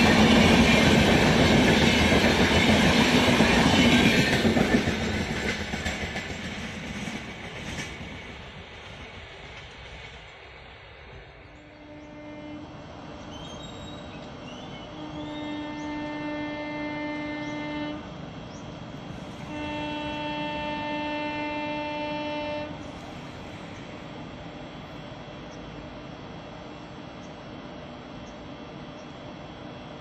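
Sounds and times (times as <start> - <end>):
train running noise: 0.0 - 30.0
train horn blasts: 11.6 - 12.8, 14.8 - 18.1, 19.4 - 22.8.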